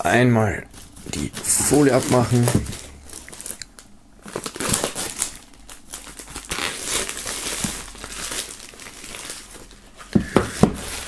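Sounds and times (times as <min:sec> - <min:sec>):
plastic shrink-wrap crinkling: 0:00.6 - 0:11.0.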